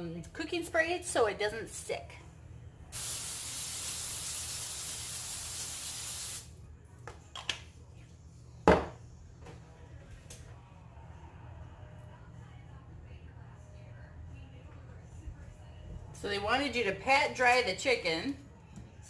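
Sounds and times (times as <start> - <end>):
aerosol can spraying: 3.0 - 6.5.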